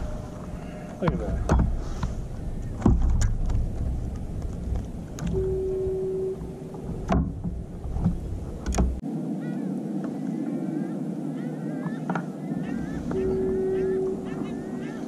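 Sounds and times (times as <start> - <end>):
wind rumble on microphone: 0.0 - 15.0
knocks and handling thumps: 1.0 - 5.5.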